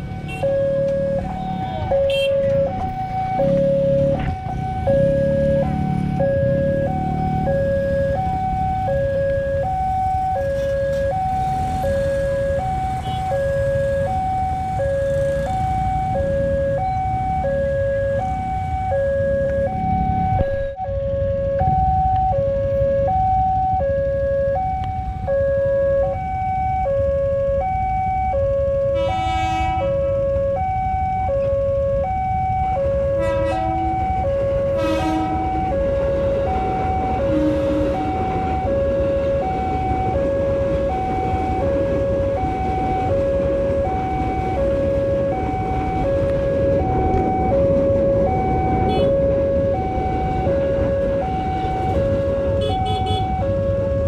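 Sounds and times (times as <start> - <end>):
motorcycles and traffic rumble: 0.0 - 54.0
horn blasts: 0.2 - 2.8, 28.9 - 30.2, 33.2 - 39.3, 48.8 - 49.2, 51.4 - 53.4
level crossing two-tone alarm: 0.2 - 28.6, 30.5 - 54.0.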